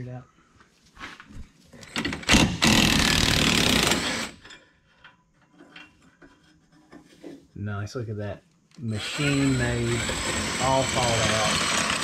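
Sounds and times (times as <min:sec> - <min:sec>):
impact wrench burst: 0:02.0 - 0:04.4, 0:08.9 - 0:12.0.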